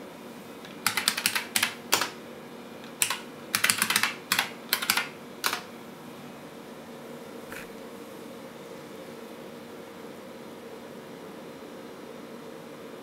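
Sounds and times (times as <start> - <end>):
keyboard keys clicking: 0.6 - 2.2, 2.8 - 5.7.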